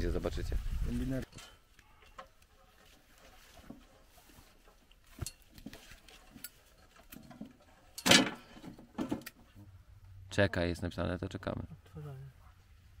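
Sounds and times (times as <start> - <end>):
metallic clinks of cables and fittings: 5.1 - 9.4.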